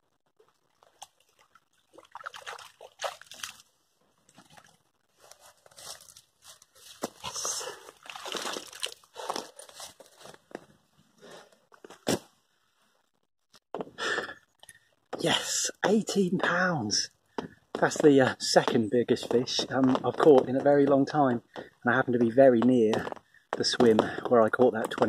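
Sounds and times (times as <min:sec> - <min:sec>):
water sloshing and splashing: 0:00.4 - 0:04.9, 0:07.8 - 0:09.5.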